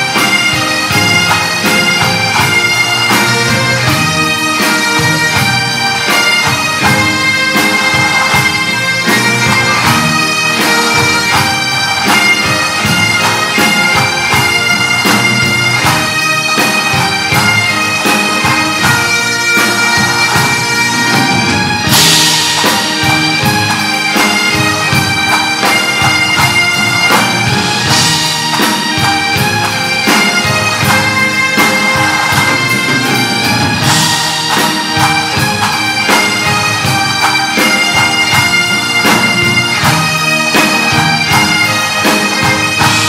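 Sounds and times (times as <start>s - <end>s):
bagpipes playing: 0.0s - 43.0s
drums beating: 0.0s - 43.0s.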